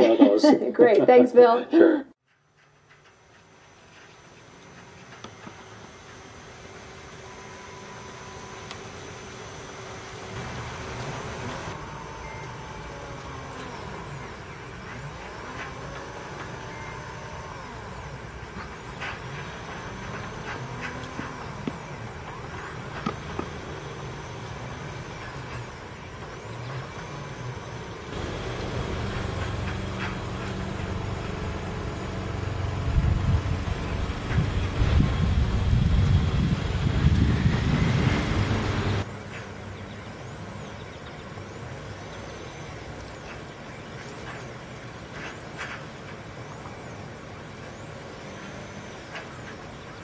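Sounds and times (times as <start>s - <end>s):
motors whining: 2.4s - 50.0s
low rumble: 28.1s - 39.0s.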